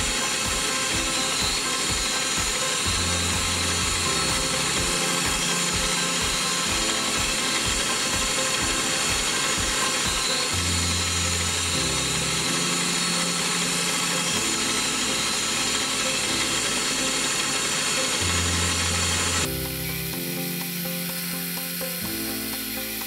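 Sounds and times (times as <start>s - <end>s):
background music with low notes: 0.0s - 23.0s
milling machine drilling metal: 0.0s - 23.0s.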